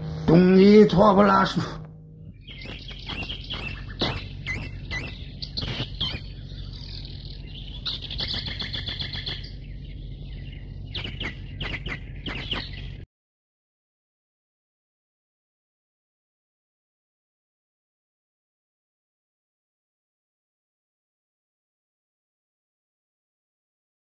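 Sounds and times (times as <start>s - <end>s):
low steady hum: 0.0s - 13.1s
birds chirping and trilling: 2.2s - 13.1s.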